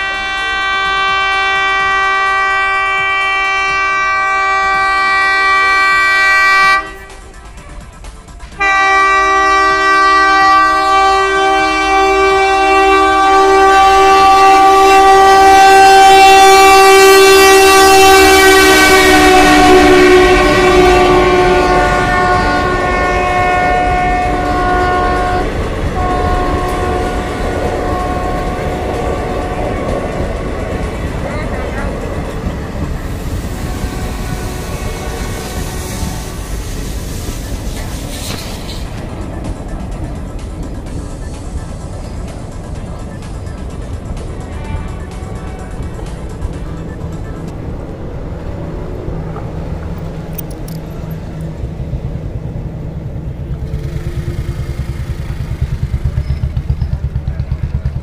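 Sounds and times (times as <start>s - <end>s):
locomotive horn blasts: 0.0s - 7.4s, 8.6s - 31.1s, 33.0s - 36.8s, 44.4s - 47.1s, 53.7s - 55.4s
train coaches rumbling and clattering: 0.0s - 58.0s.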